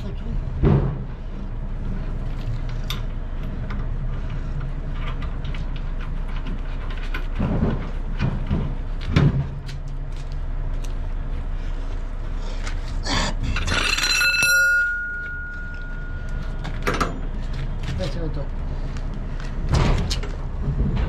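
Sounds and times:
steady background hum: 0.0 - 21.0
metal clinks and knocks: 13.5 - 17.7
metallic ring: 13.6 - 17.3.

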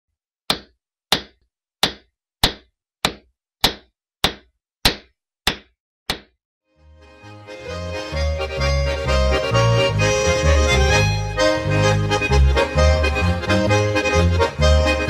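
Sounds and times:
sharp knocks: 0.5 - 6.3
accordion music: 6.7 - 15.0.

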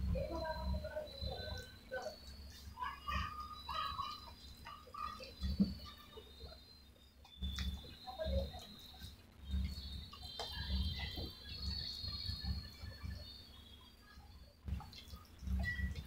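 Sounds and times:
chewing: 14.6 - 16.0.

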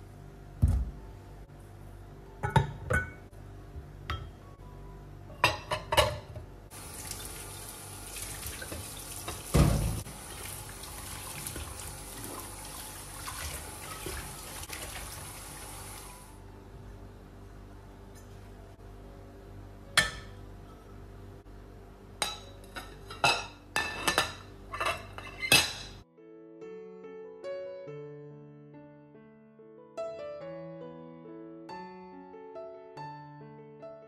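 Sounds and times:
tap water running: 6.7 - 16.3
ceramic bowls clinking in sink: 22.2 - 26.0.

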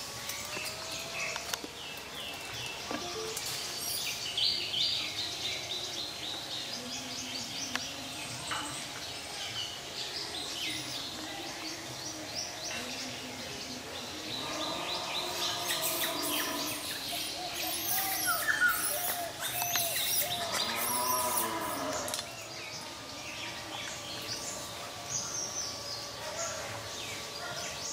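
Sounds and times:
birds chirping chorus: 0.0 - 27.9.

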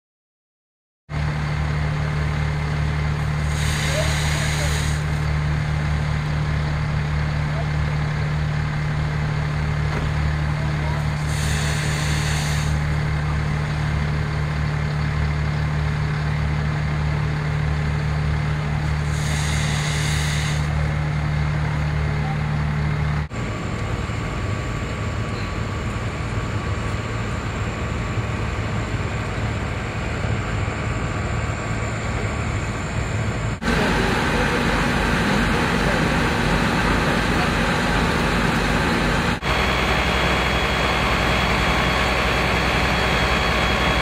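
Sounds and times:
diesel engines humming: 1.1 - 44.0
brief hisses: 11.3 - 12.8, 19.1 - 20.7.

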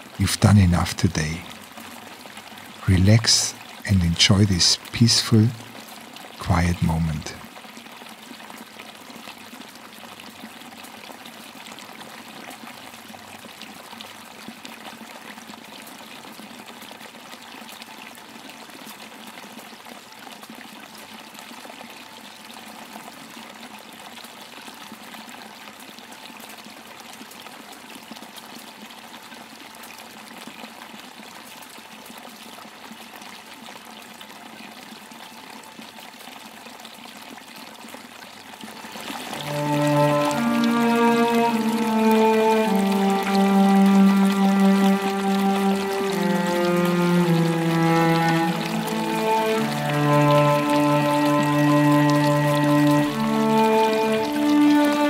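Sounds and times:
waterfall rushing: 2.7 - 5.8, 6.4 - 7.5, 38.9 - 55.0.

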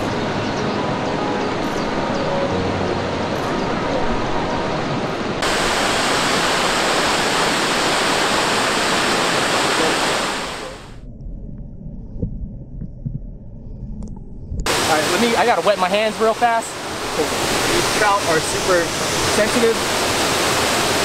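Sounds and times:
waterfall rushing: 0.0 - 11.0, 14.7 - 21.0
muffled underwater rumble: 10.6 - 14.7.

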